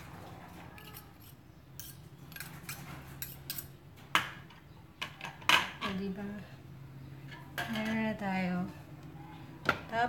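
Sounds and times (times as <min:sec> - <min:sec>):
metal spoon scraping and tapping: 0:00.7 - 0:04.3.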